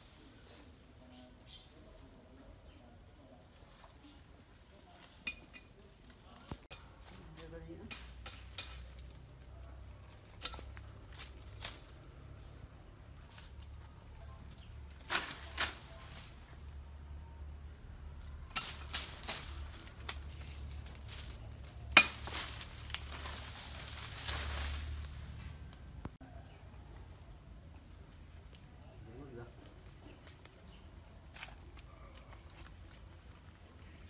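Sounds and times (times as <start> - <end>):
leaves rustling: 0.0 - 2.7, 3.5 - 16.8, 18.2 - 34.0
branches snapping: 6.7 - 9.5, 10.2 - 12.1, 14.5 - 16.3, 18.2 - 26.2.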